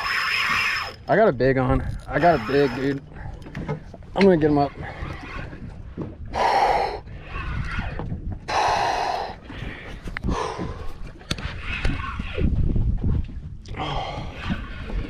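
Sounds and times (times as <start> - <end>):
person breathing hard: 8.5 - 11.0.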